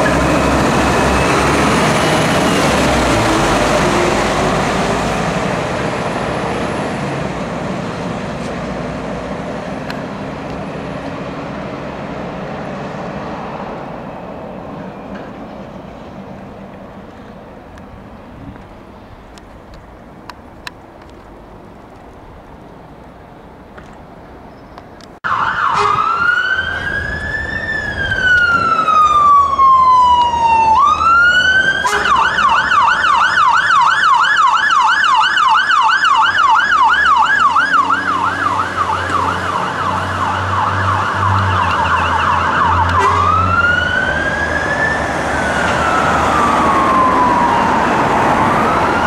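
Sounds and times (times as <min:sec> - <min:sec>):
fire engine siren wailing and yelping: 0:00.0 - 0:07.6, 0:25.2 - 0:49.0
diesel engine rumble: 0:00.0 - 0:25.2.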